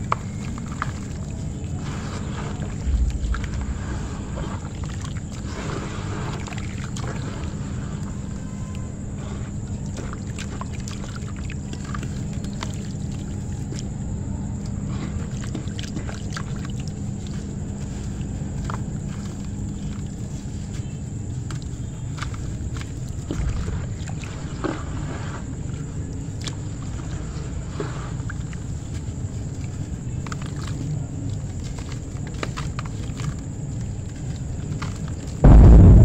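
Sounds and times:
steady low hum: 0.0 - 10.2, 13.9 - 26.3, 35.4 - 36.0
hands squishing wet ash in water: 0.0 - 35.4
dull thump: 35.5 - 36.0.

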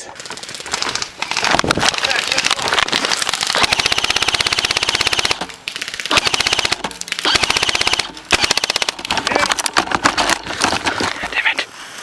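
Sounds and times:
airsoft rifle firing full-auto: 1.9 - 9.1.

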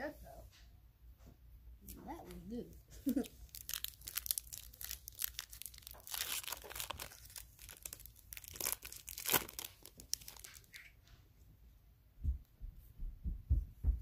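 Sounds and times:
plastic wrapper crinkling and tearing: 3.0 - 11.0.

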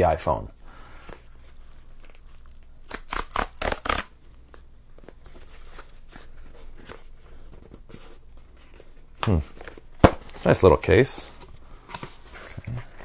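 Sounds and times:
cardboard tearing: 1.6 - 4.1.

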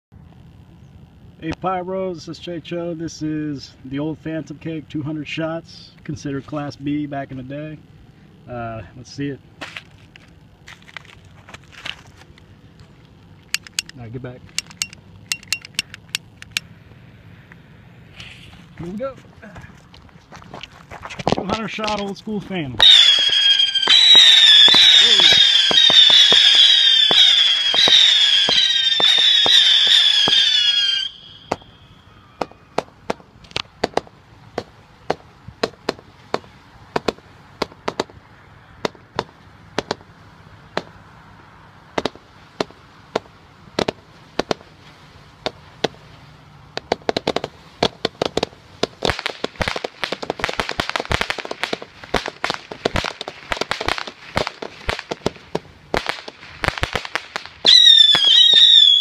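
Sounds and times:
firework pops: 22.8 - 30.5, 31.5 - 31.7, 32.4 - 38.2, 38.8 - 40.1, 40.7 - 40.9, 41.9 - 44.7, 46.7 - 58.9
firework whistles screaming: 22.8 - 32.9, 57.6 - 59.0.

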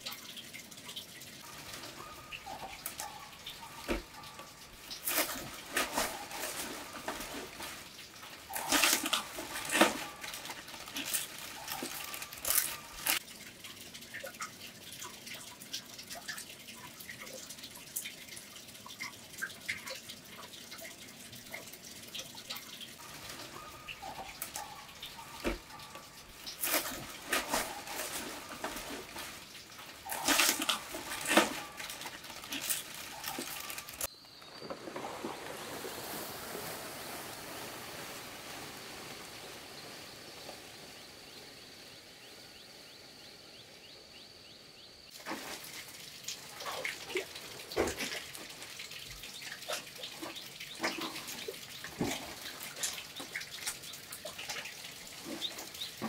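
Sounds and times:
dry thatch rustling and crackling: 1.4 - 13.2, 23.0 - 41.0, 45.1 - 50.2.

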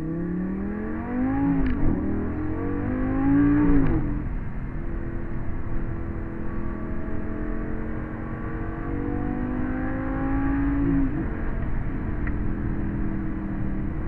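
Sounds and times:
car engine accelerating: 0.0 - 14.0.

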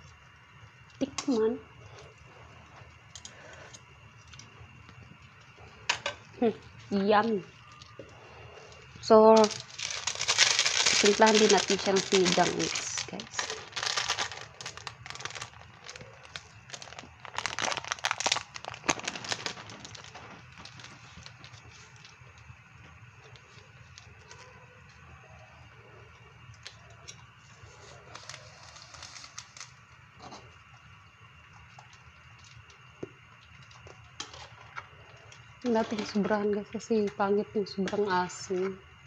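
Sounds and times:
soup simmering hiss and pops: 0.0 - 39.0
sachet crinkling: 8.7 - 22.4, 28.0 - 29.8.

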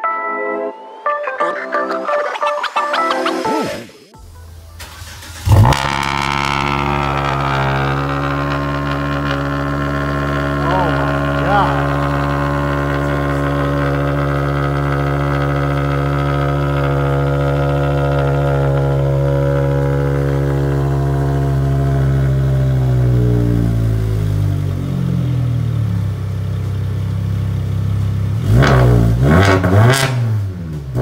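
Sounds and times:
car engine idling fast: 4.8 - 28.4.

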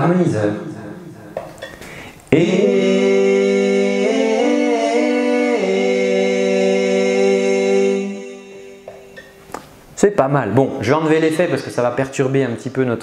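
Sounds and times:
man singing with harmony voices: 2.3 - 9.4.

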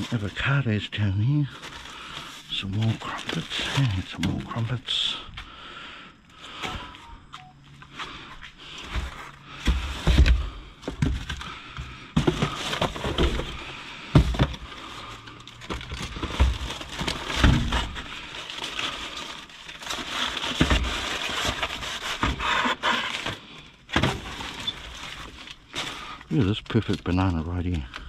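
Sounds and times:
plastic packaging crinkling: 0.0 - 4.9, 12.1 - 28.0
knocks and thumps of items: 8.8 - 14.8, 15.6 - 18.1, 20.4 - 24.7.

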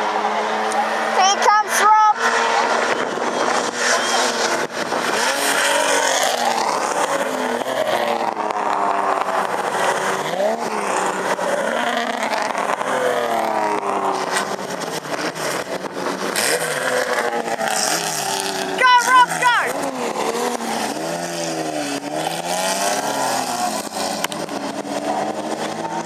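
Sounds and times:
racing car engines accelerating: 0.0 - 26.0.

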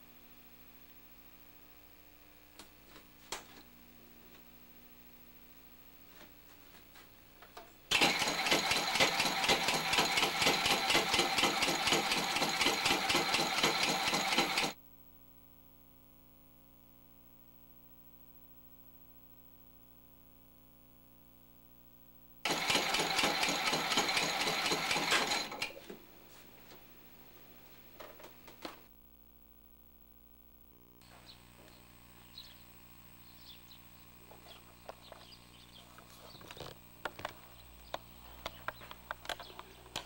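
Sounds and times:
fast mechanical clatter: 7.9 - 14.8, 22.4 - 25.8
low steady hum: 25.7 - 40.0.

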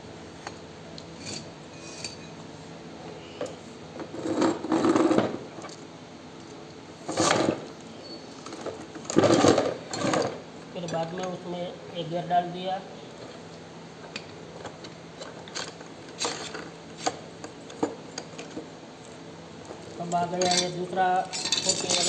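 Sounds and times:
metal clanking and rubbing: 1.2 - 2.4, 21.3 - 22.0.

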